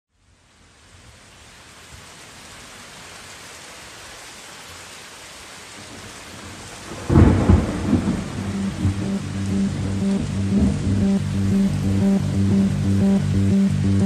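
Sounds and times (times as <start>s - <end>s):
rain hissing: 0.2s - 14.0s
thunder rumble: 6.4s - 14.0s
music: 8.3s - 14.0s.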